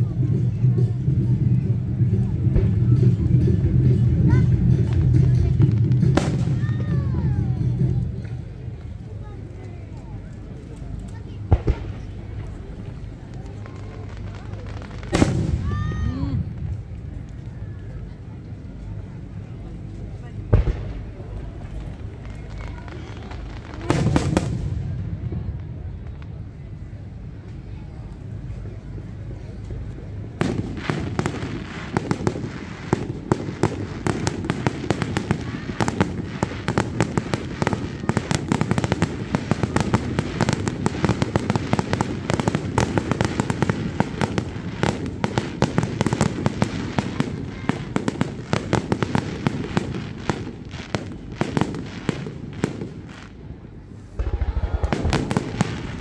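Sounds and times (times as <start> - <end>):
fireworks cracks and bangs: 0.0 - 28.3, 29.6 - 56.0
rumble of firework booms: 11.4 - 17.4, 20.5 - 27.0, 30.2 - 56.0.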